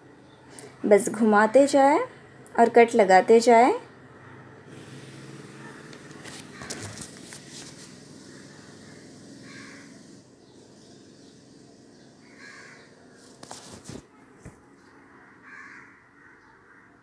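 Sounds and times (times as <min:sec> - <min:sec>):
faint bird call: 0:08.3 - 0:10.6.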